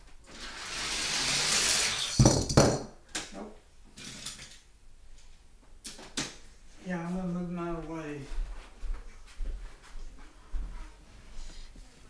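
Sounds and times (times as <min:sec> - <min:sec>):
toy car rolling on plastic track: 0:00.3 - 0:02.5.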